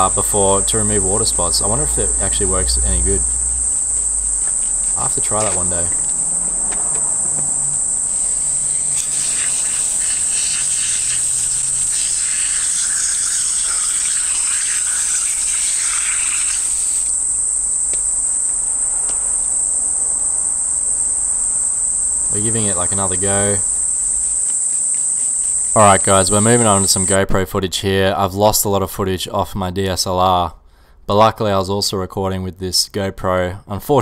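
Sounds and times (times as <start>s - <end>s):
high-pitched insect chorus: 0.0s - 27.2s
soft hiss: 7.6s - 19.7s.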